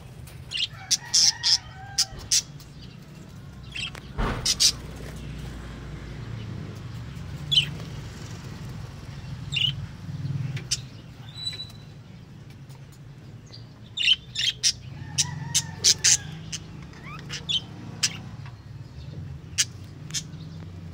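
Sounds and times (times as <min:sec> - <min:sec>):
parrots chirping: 0:09.5 - 0:09.9, 0:10.5 - 0:11.9, 0:13.9 - 0:18.4.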